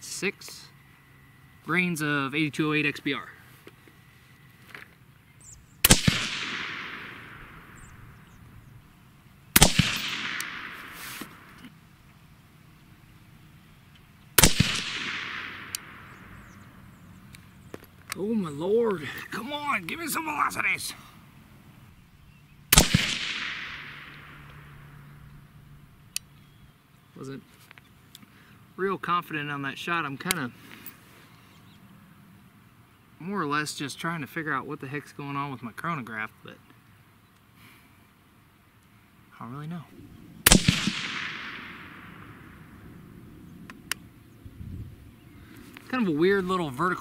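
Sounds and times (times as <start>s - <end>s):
echo of gunshot: 5.8s - 8.4s, 9.5s - 11.6s, 14.4s - 16.7s, 22.7s - 25.0s, 40.4s - 43.0s
suppressed rifle shots: 5.8s - 8.5s, 9.5s - 11.8s, 14.4s - 16.7s, 22.7s - 25.1s, 40.4s - 44.1s
sharp report: 9.5s - 11.8s, 14.0s - 21.0s, 22.7s - 25.2s, 40.4s - 42.8s.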